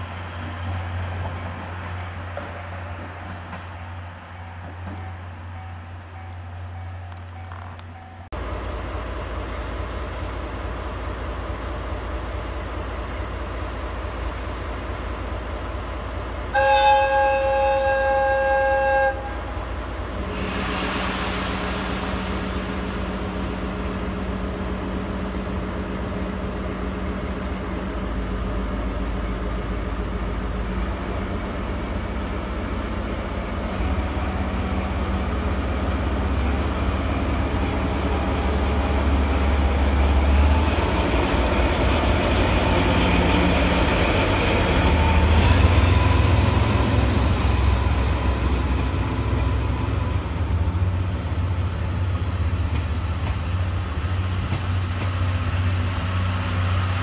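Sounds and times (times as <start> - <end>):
diesel locomotive engine: 0.0 - 57.0
locomotive air horn blast: 16.5 - 22.1
air hiss: 20.2 - 24.3.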